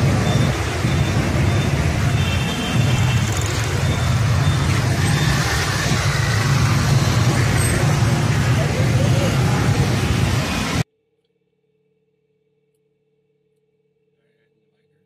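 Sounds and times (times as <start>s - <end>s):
street traffic rumble: 0.0s - 10.9s.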